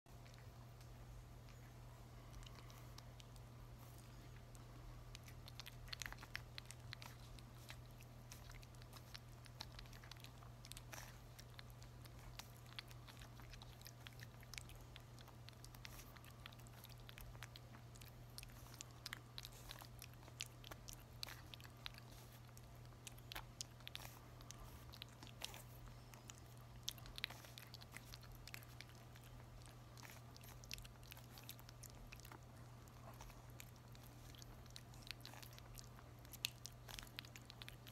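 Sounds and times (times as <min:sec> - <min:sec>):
low steady hum: 0:00.1 - 0:37.9
puppy licking wet smacks: 0:02.3 - 0:37.9.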